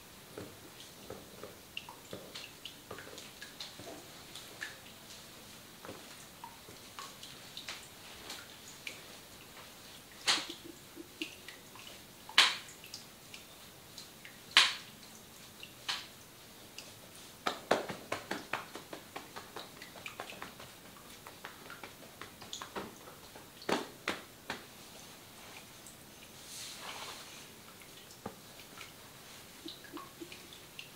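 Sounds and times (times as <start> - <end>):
wet smacks and clicks of massage: 6.0 - 16.2, 16.8 - 24.8, 27.8 - 30.9.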